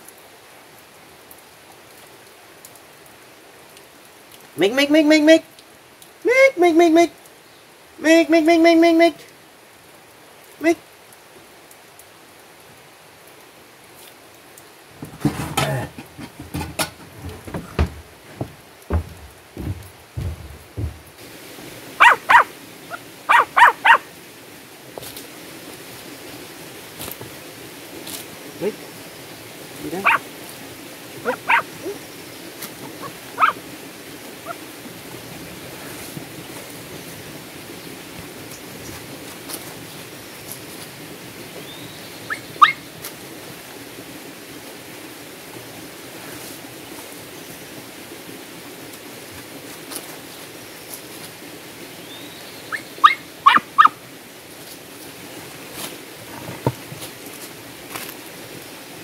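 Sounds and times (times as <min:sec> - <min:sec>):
dull knock: 0:15.0 - 0:21.2
dog whining yelps: 0:22.0 - 0:24.0, 0:30.0 - 0:30.2, 0:31.3 - 0:31.7, 0:32.9 - 0:33.6, 0:42.3 - 0:42.8, 0:52.7 - 0:54.0.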